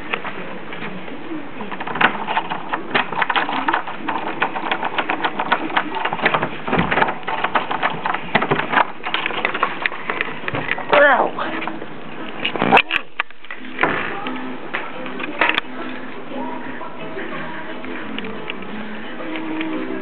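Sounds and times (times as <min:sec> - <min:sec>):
rapid sharp clicking: 0:01.7 - 0:10.8.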